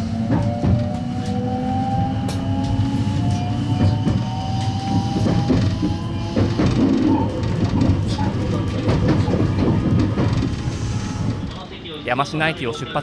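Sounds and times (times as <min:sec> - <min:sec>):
electric train motor whine: 0:00.0 - 0:11.4
wheels rumbling: 0:00.0 - 0:11.7
wheels clicking over rail joints: 0:03.8 - 0:10.8.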